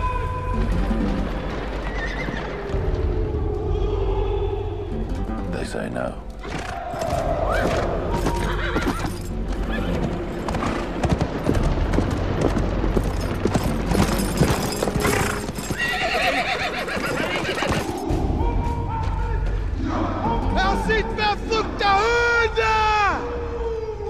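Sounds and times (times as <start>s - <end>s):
horse hoofbeats galloping: 6.4s - 18.2s
horse neighing: 7.6s - 10.0s, 15.0s - 17.9s.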